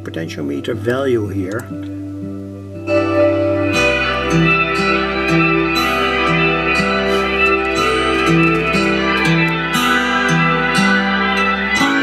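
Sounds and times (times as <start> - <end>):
plucked-string melody: 0.0 - 12.0
bass line: 0.8 - 12.0.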